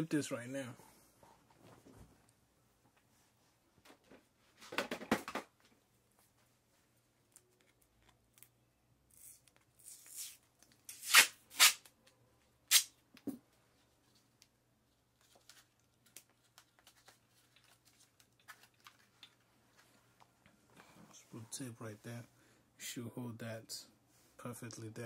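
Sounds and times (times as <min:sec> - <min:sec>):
adhesive tape ripping: 0:09.1 - 0:11.9, 0:12.7 - 0:12.9.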